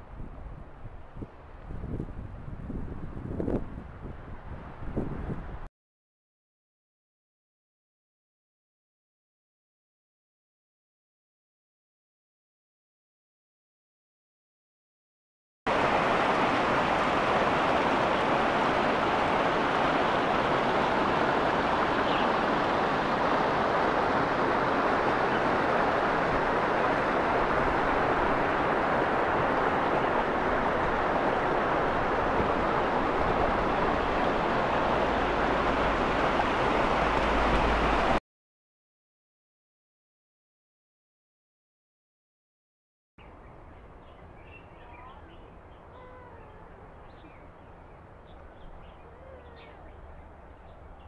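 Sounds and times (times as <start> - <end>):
stream rushing over rocks: 15.7 - 38.2.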